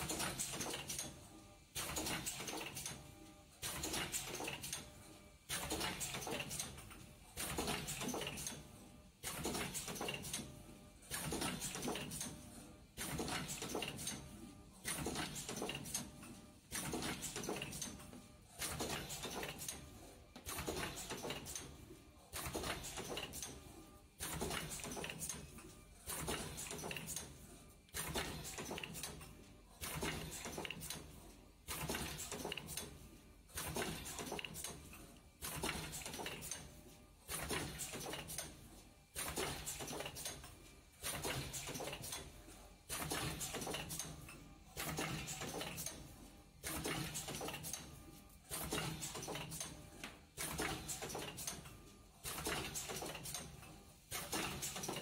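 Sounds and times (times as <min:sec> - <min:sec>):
machine rattling and clattering: 0:00.0 - 0:01.1, 0:01.8 - 0:02.9, 0:03.6 - 0:04.8, 0:05.5 - 0:08.6, 0:09.2 - 0:10.5, 0:11.1 - 0:12.4, 0:13.0 - 0:14.2, 0:14.8 - 0:18.0, 0:18.6 - 0:19.8, 0:20.4 - 0:23.6, 0:24.2 - 0:27.3, 0:27.9 - 0:36.7, 0:37.3 - 0:38.6, 0:39.2 - 0:44.2, 0:44.8 - 0:46.0, 0:46.6 - 0:47.9, 0:48.5 - 0:49.7, 0:50.3 - 0:55.0
machine clacking: 0:13.0 - 0:14.2, 0:14.8 - 0:16.1, 0:16.7 - 0:18.0, 0:18.6 - 0:19.8, 0:20.4 - 0:21.7, 0:22.3 - 0:23.6, 0:24.2 - 0:25.5, 0:26.1 - 0:27.3, 0:27.9 - 0:36.7, 0:39.2 - 0:42.3, 0:42.9 - 0:46.0, 0:46.6 - 0:47.9, 0:50.4 - 0:55.0.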